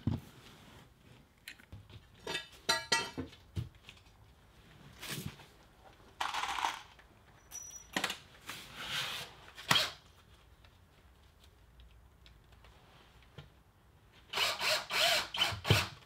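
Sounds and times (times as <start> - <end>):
handling rustles and scrapes: 0.0 - 6.6, 8.3 - 9.6.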